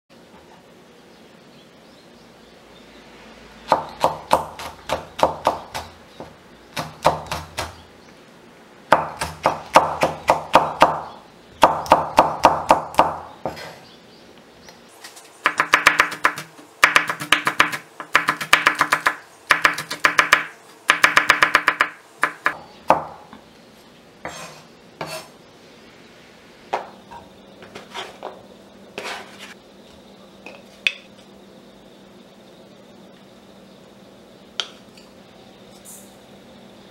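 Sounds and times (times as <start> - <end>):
knife chopping on wooden board: 3.7 - 7.8, 8.9 - 13.8, 15.4 - 23.2.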